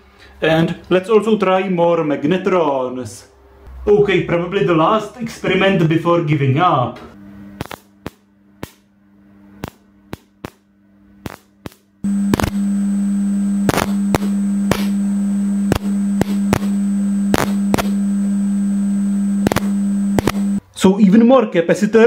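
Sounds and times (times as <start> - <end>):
loud electrical hum: 0.0 - 20.9
sharp electrical snaps: 7.6 - 8.9, 9.6 - 20.6.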